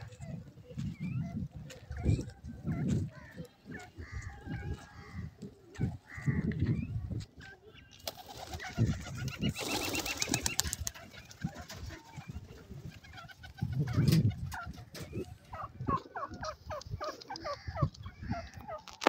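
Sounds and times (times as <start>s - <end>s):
pigeons cooing: 0.0s - 19.0s
wings flapping: 8.0s - 14.7s.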